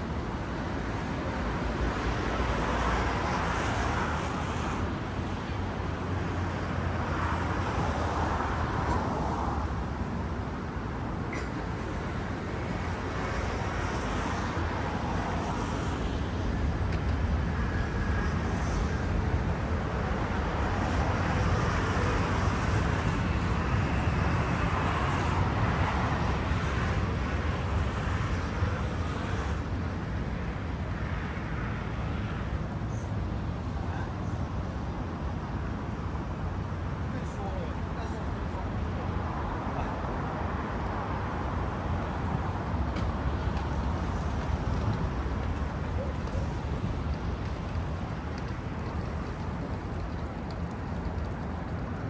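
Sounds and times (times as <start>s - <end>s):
city traffic hum: 0.0s - 52.0s
airplane passing overhead: 11.3s - 52.0s.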